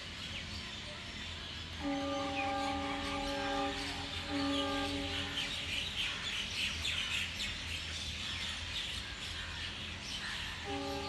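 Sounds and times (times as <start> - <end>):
many birds chirping: 0.0 - 11.0.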